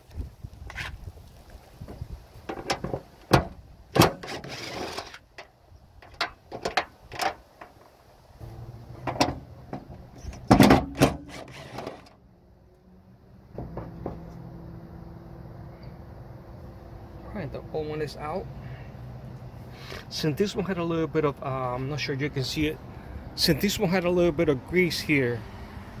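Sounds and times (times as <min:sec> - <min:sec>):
metallic clicks and knocks: 0:05.3 - 0:07.8
cordless drill-driver running: 0:11.3 - 0:12.0.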